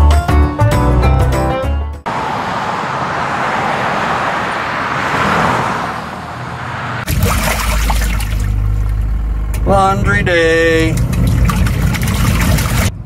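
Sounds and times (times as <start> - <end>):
churning water: 7.0 - 9.0, 10.6 - 12.9
washing machine motor hum: 7.1 - 10.0, 10.6 - 12.9.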